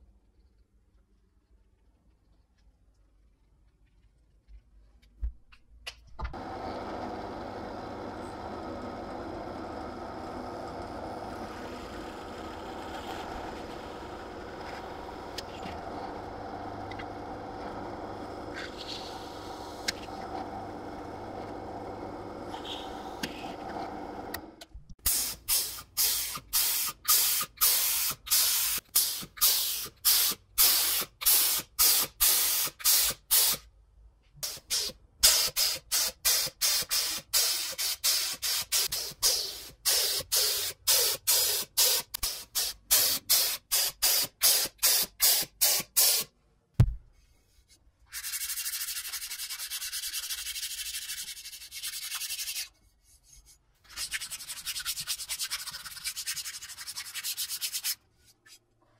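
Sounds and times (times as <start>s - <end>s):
air spray gun hissing: 34.4s - 46.3s.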